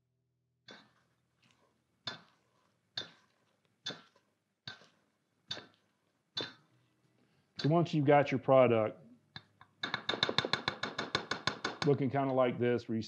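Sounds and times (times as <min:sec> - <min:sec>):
spatula knocking metal bowl: 0:09.8 - 0:12.0.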